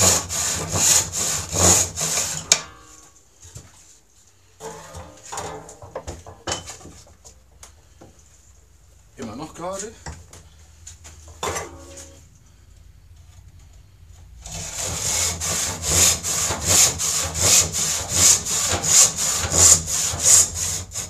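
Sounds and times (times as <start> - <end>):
handsaw cutting wood: 0.0 - 2.4, 14.4 - 21.0.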